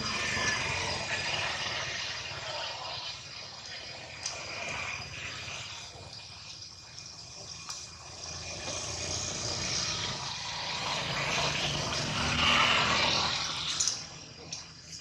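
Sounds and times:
vehicle passing by: 8.3s - 14.3s.

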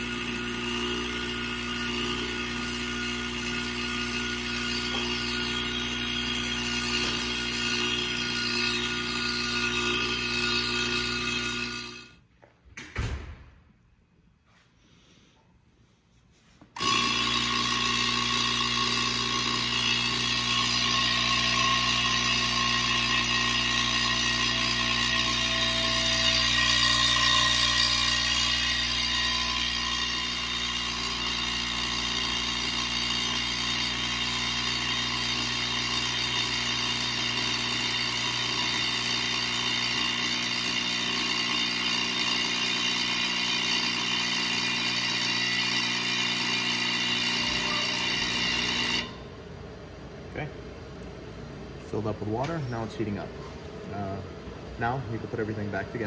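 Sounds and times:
espresso machine pump buzzing: 0.0s - 12.2s, 16.8s - 49.4s.

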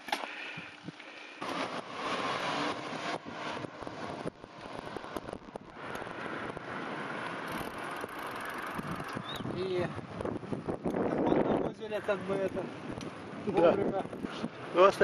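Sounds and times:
bike tyres rolling on road: 0.0s - 15.0s
wind on microphone: 7.5s - 14.6s.

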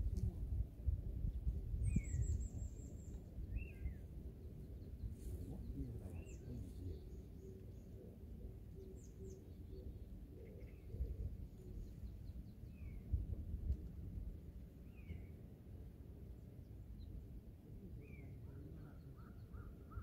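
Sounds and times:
small birds chirping: 1.2s - 13.2s, 17.9s - 20.0s.

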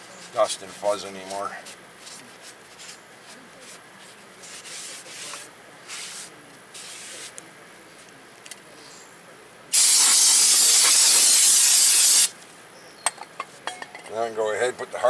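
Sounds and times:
paper towel rubbing: 0.2s - 7.3s
aerosol can spraying hiss: 9.7s - 12.3s.

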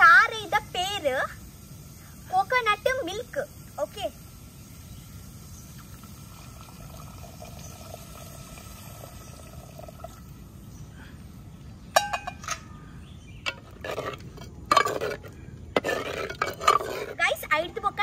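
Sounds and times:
liquid pouring into a pot: 5.7s - 10.3s.

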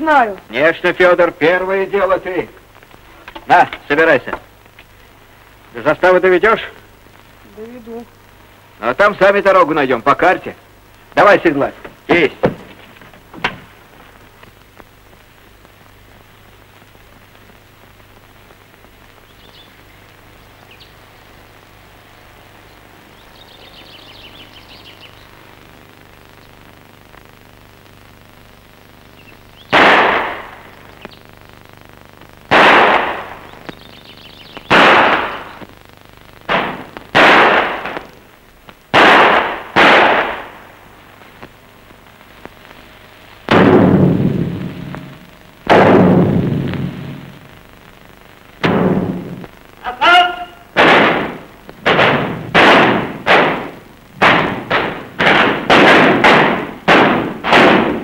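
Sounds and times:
film soundtrack hiss: 0.0s - 58.0s
loud explosions: 29.7s - 30.9s, 32.5s - 33.7s, 34.6s - 35.7s, 36.5s - 38.1s, 38.9s - 40.8s, 43.4s - 47.5s, 48.6s - 49.5s, 50.7s - 58.0s.

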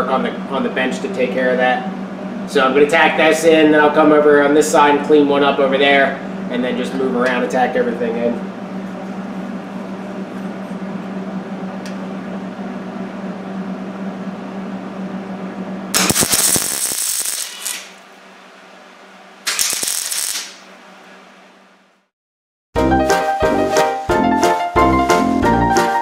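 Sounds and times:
steady hum: 0.0s - 22.1s
welding arc crackling: 16.0s - 18.2s, 19.4s - 20.8s.

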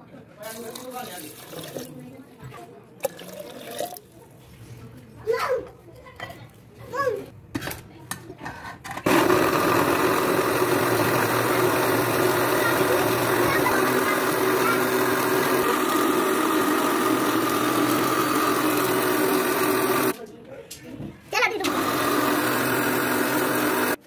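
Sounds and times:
electric mixer grinder running: 9.1s - 20.2s, 21.6s - 24.0s.

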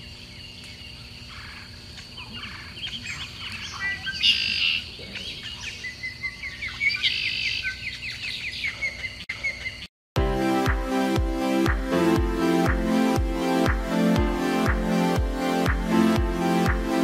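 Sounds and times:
small birds chirping: 0.0s - 9.9s.

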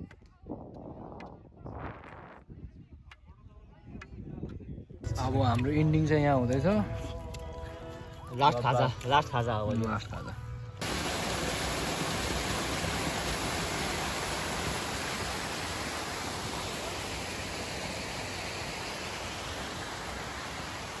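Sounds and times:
waterfall rushing over rocks: 10.8s - 21.0s.

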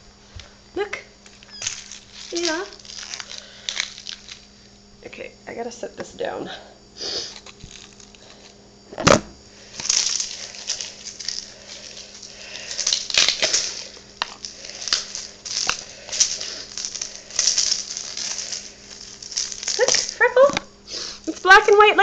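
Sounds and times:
rustling and crinkling: 1.2s - 4.8s, 7.2s - 21.9s
camera set down knock: 9.0s - 9.3s.

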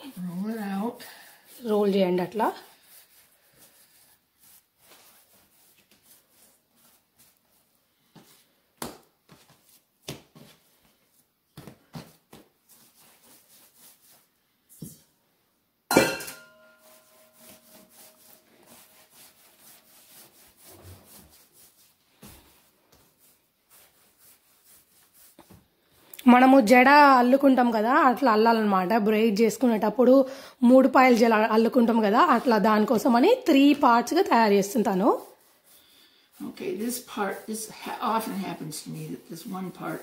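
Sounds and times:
hands patting and rubbing dough: 0.0s - 15.1s, 16.8s - 27.1s.

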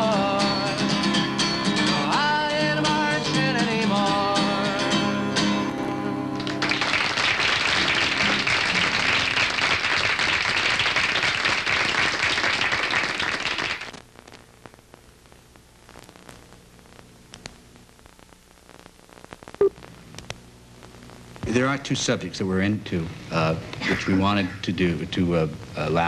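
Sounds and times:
acoustic guitar chord: 0.0s - 6.6s
faint room hum: 2.0s - 26.0s
audience applause: 6.4s - 14.0s.

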